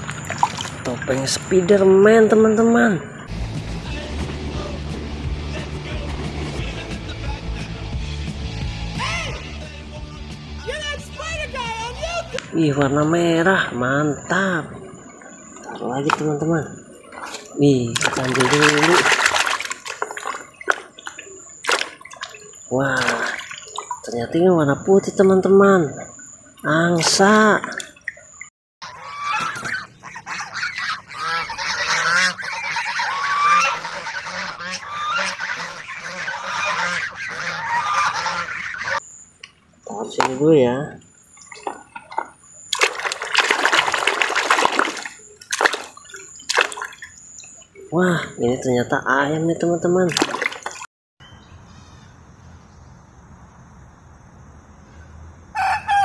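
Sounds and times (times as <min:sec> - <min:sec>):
soapy water splash: 0:00.0 - 0:01.3, 0:14.4 - 0:24.4, 0:26.1 - 0:28.5, 0:41.3 - 0:47.9, 0:50.0 - 0:50.9
faint outdoor background: 0:00.0 - 0:56.0
geese honking: 0:10.6 - 0:27.8, 0:28.8 - 0:39.2, 0:55.6 - 0:56.0
rooster crowing: 0:55.5 - 0:56.0.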